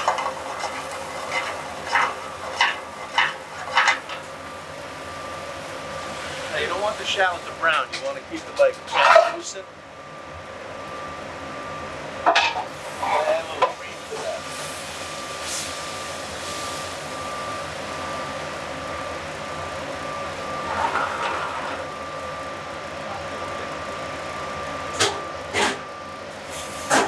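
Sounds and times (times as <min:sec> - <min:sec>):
clatter of utensils: 0:00.0 - 0:04.3, 0:07.7 - 0:09.5, 0:12.3 - 0:12.7.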